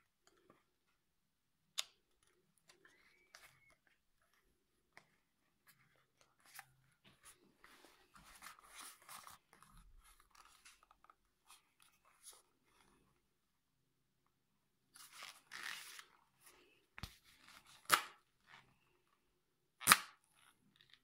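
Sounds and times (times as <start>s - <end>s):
headphones handling clicks and rustles: 0.0s - 1.1s, 1.7s - 13.2s.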